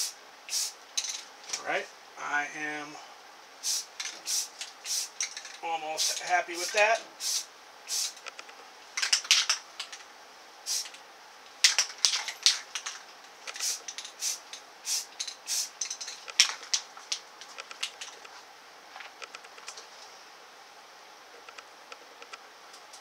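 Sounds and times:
spray paint can hissing: 0.0 - 0.8, 3.6 - 8.2, 9.0 - 10.0, 10.7 - 11.0, 11.6 - 18.2.

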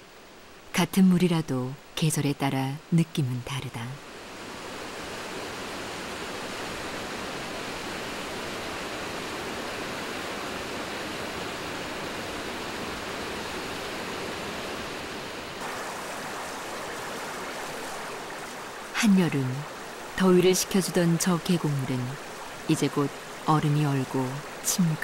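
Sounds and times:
waterfall rushing: 4.2 - 25.0
water splashing over rock: 15.6 - 19.0.

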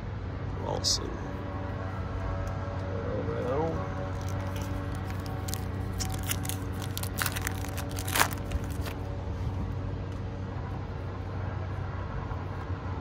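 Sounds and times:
steady low hum: 0.0 - 13.0
foil wrapper crinkling and tearing: 4.1 - 9.0.

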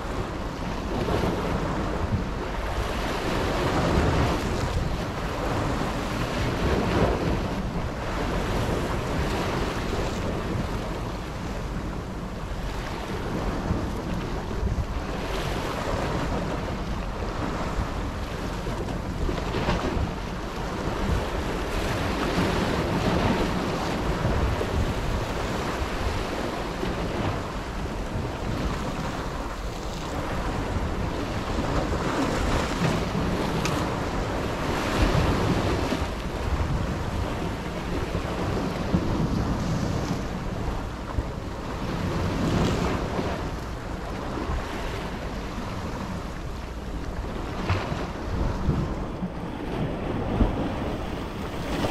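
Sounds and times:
wind buffeting microphone: 0.0 - 51.9
waves breaking on rocks: 12.7 - 51.9.

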